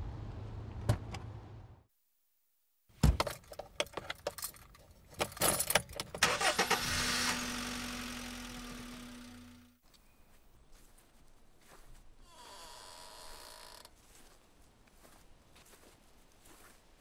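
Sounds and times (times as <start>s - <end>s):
car starter cranking: 5.4s - 9.7s
car engine running: 6.2s - 9.8s.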